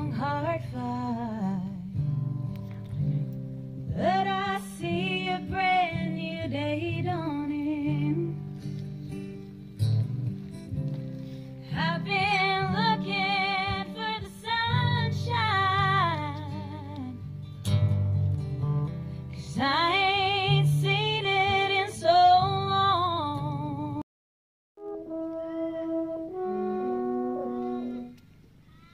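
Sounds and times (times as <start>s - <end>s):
strummed acoustic guitar: 0.0s - 23.5s
women singing with vibrato: 3.9s - 8.4s, 11.7s - 17.2s, 19.5s - 24.0s.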